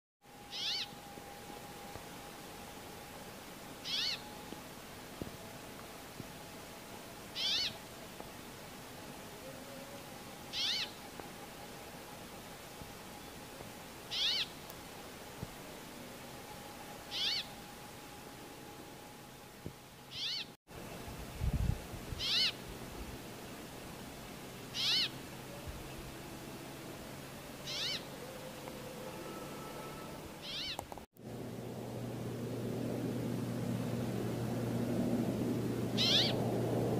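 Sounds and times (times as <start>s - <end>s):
bird calls rising and falling: 0.5s - 1.0s, 3.8s - 4.4s, 7.4s - 7.8s, 10.5s - 11.0s, 14.1s - 14.6s, 17.1s - 17.5s, 20.1s - 20.6s, 22.2s - 22.6s, 24.7s - 25.2s, 27.6s - 31.0s, 35.9s - 36.5s
bird wheezy calls: 3.9s - 4.2s, 22.2s - 22.5s, 24.8s - 25.1s, 27.7s - 28.1s, 36.0s - 36.4s.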